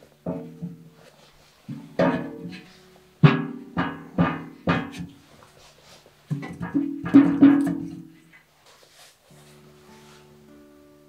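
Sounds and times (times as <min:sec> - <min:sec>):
acoustic guitar plucking: 0:01.7 - 0:05.4, 0:06.3 - 0:08.4.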